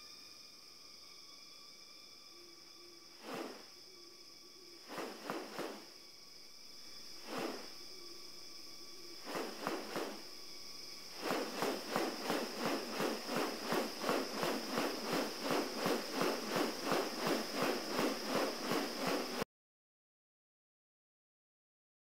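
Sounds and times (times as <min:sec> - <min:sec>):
high-pitched insect drone: 0:00.0 - 0:19.4
bird wings rustling: 0:03.2 - 0:03.7, 0:04.8 - 0:05.9, 0:07.2 - 0:07.8, 0:09.2 - 0:19.4.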